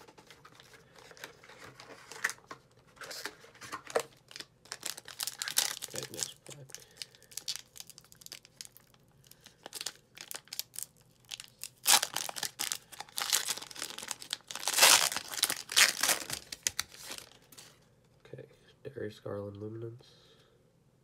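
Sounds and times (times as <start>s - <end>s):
foil wrapper crinkling and tearing: 0.0s - 17.7s.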